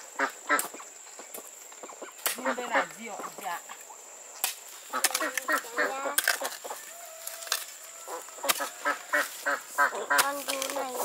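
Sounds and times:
poultry honking and squawking: 1.8 - 3.4, 4.9 - 11.0.

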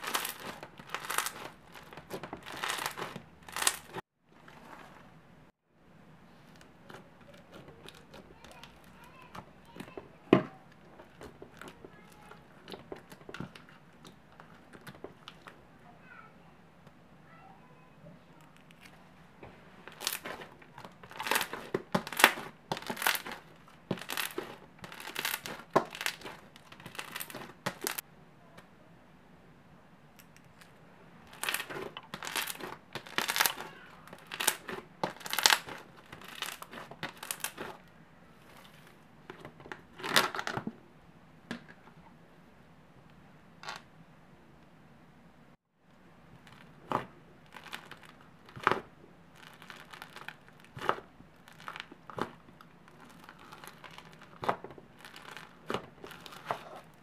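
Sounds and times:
slime squishing and crackling: 0.0 - 5.0, 6.8 - 15.6, 19.8 - 28.0, 31.2 - 37.9, 46.3 - 57.0.

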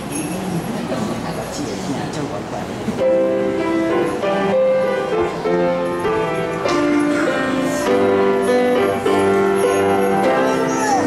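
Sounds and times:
piano playing a hymn: 2.9 - 11.0.

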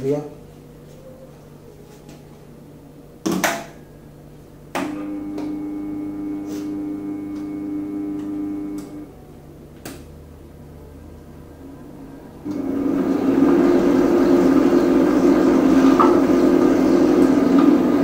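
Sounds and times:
machine motor humming: 4.7 - 9.2, 11.8 - 18.0.

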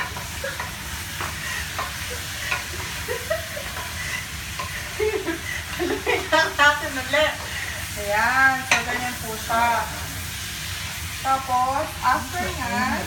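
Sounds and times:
wooden spoon scraping pot: 0.0 - 9.2
meat sizzling in oil: 0.0 - 13.0.

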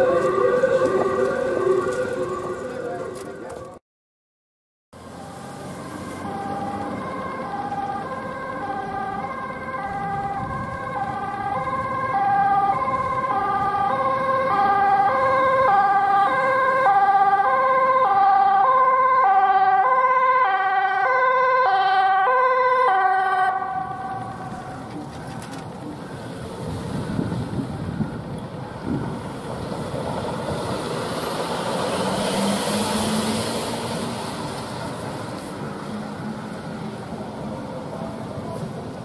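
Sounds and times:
low traffic noise: 0.0 - 3.8, 5.0 - 39.0
two-tone ambulance siren: 0.0 - 3.8, 5.0 - 25.2.

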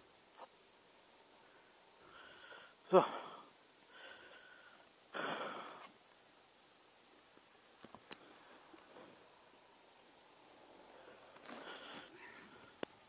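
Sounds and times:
close breathing: 1.3 - 5.9, 10.7 - 12.9.

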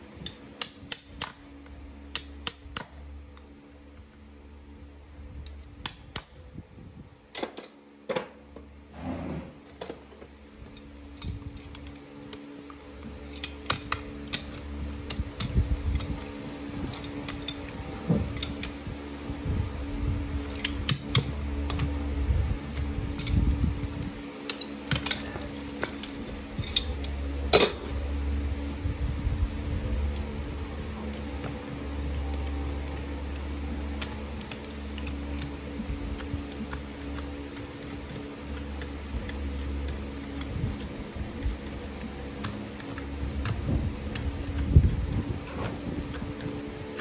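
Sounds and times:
low hum: 0.0 - 47.0
hammer tapping metal horseshoe: 0.2 - 3.1, 5.5 - 6.4, 24.4 - 27.8.

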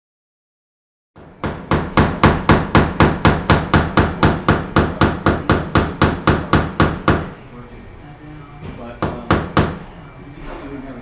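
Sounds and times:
hammer striking rhythmically: 1.2 - 7.4, 9.0 - 9.9.

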